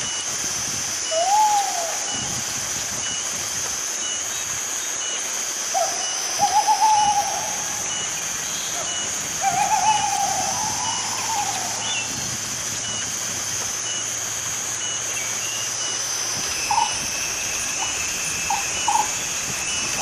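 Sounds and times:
high insect drone: 0:00.0 - 0:20.0
owl wailing call: 0:01.1 - 0:02.3, 0:05.7 - 0:12.4, 0:16.6 - 0:20.0.

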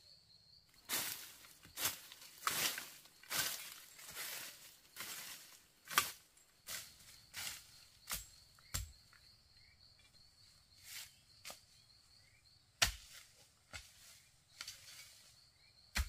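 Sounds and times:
hoe chopping into soil: 0:07.4 - 0:09.0, 0:12.8 - 0:15.0.

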